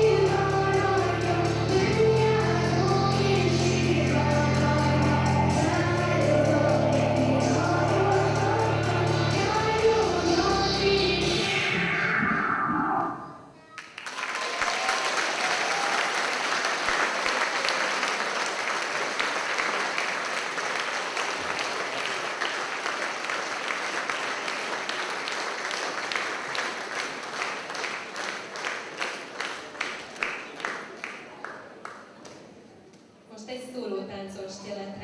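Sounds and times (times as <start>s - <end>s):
audience applauding: 13.7s - 32.4s.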